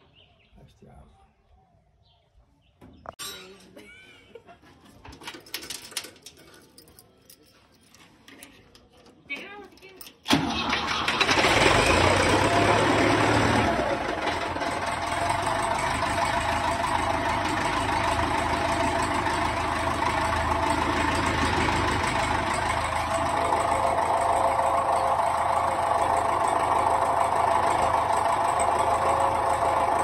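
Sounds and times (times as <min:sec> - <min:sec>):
tractor engine idling: 0:10.2 - 0:30.0.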